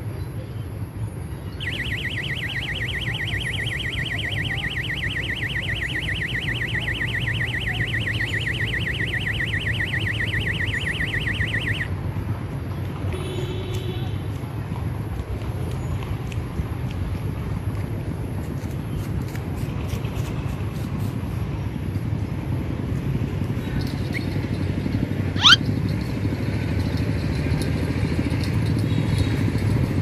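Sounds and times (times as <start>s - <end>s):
warbling electronic alarm tone: 1.6s - 11.9s, 25.4s - 25.6s.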